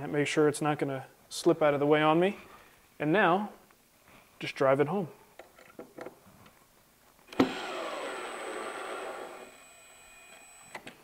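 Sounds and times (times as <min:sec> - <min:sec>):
cordless drill whirring: 0:07.3 - 0:11.0.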